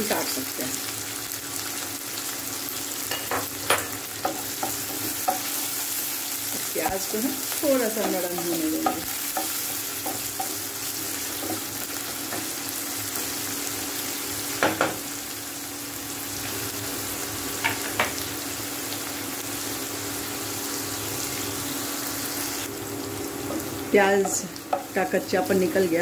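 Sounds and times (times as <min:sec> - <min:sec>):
onions sizzling in hot oil: 0:00.0 - 0:26.0
wooden spatula knocking on pan: 0:08.0 - 0:10.6, 0:14.6 - 0:15.0.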